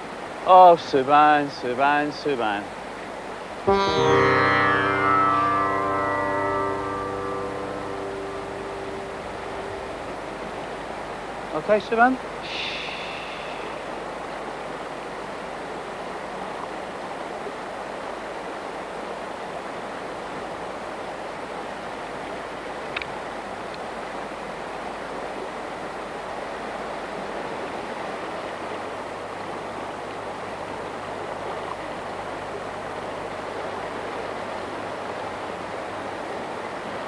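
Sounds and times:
river water rushing over rocks: 8.8 - 37.0.

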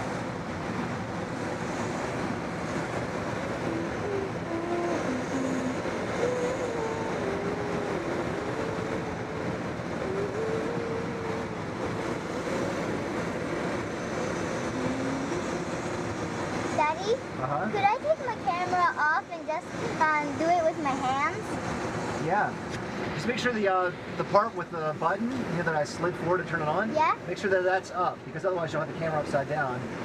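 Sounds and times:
thin wandering tone: 1.6 - 21.6.

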